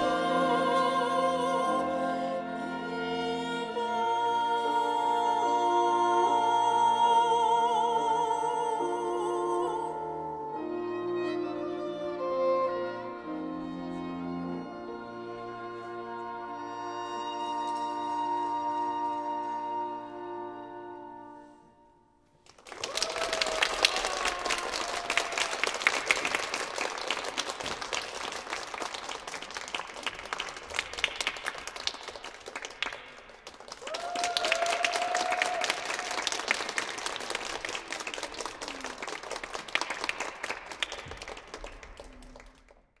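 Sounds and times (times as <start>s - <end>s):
audience applause: 22.4s - 42.8s.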